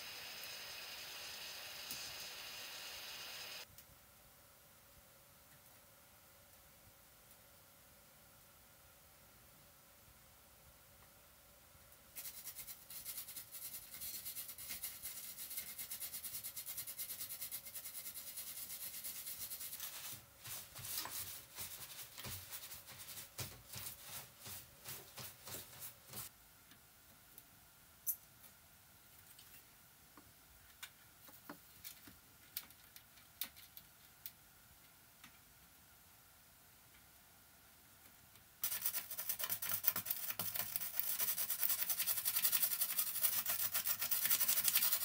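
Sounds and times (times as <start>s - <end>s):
tool scrubbing circuit board: 38.6s - 45.0s.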